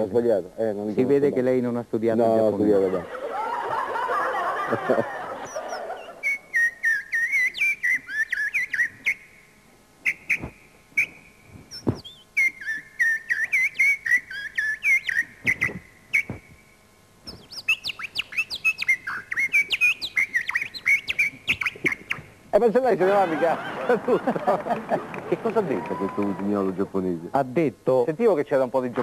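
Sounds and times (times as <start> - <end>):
man whistling birdsong: 5.5 - 9.2, 10.0 - 16.4.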